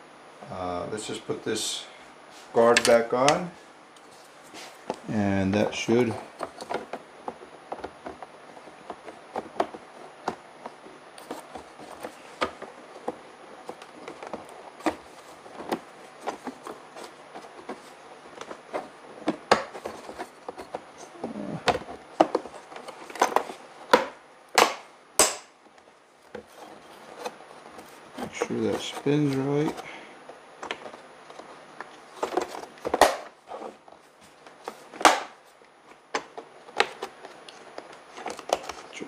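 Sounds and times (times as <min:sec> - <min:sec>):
sharp plastic snaps: 0:22.2 - 0:25.6.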